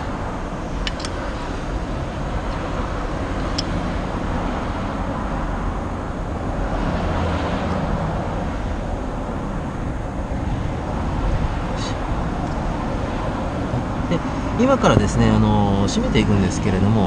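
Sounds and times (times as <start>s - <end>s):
low rumble and hiss: 8.1s - 17.0s.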